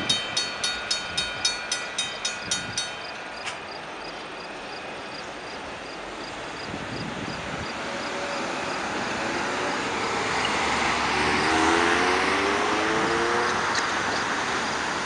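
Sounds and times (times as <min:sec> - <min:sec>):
car engine whining accelerating: 0:07.6 - 0:15.0.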